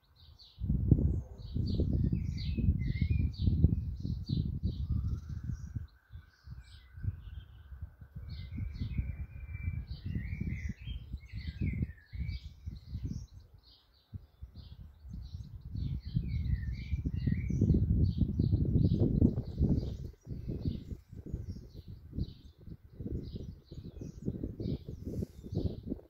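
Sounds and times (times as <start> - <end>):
blackbird song: 0.0 - 26.0
gusty wind rumble on microphone: 0.0 - 26.0
sparrows chirping: 0.0 - 26.0.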